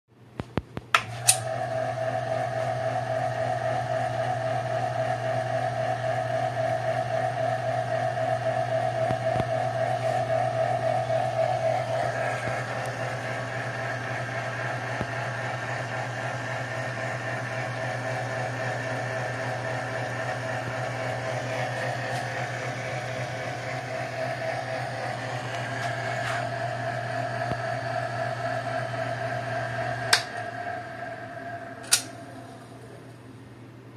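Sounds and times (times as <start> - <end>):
lathe motor hum and whine: 1.0 - 33.8
switch click: 31.8 - 32.1.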